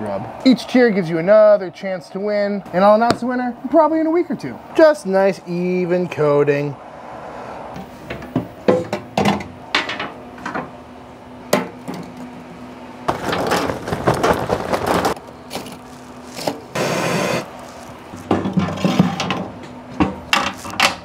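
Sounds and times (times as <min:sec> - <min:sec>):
propane torch hissing: 0:16.7 - 0:17.8.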